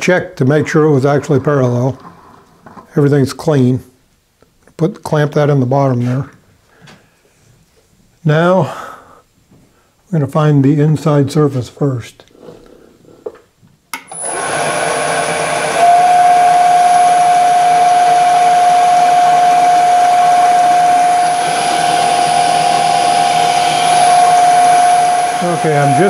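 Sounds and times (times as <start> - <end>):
milling spindle whine: 14.1 - 26.0.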